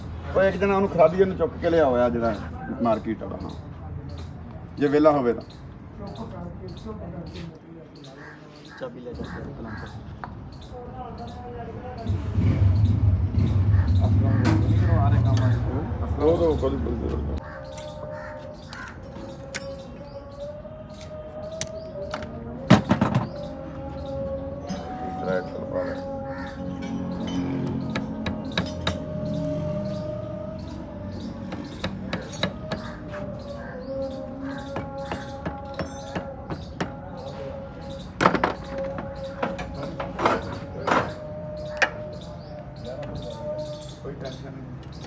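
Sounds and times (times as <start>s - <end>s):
hand tool knocks: 27.7s - 29.1s, 34.6s - 37.0s.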